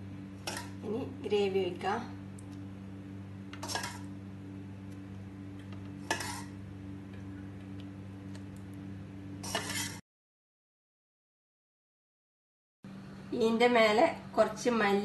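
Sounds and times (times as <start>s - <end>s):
steady low hum: 0.0s - 10.0s
ladle scraping steel pan: 3.6s - 4.1s, 6.0s - 6.5s, 9.4s - 10.0s.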